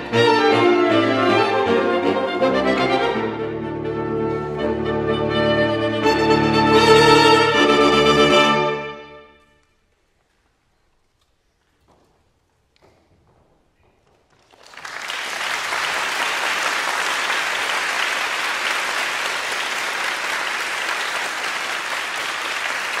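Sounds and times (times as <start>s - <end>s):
audience applause: 14.3s - 23.0s.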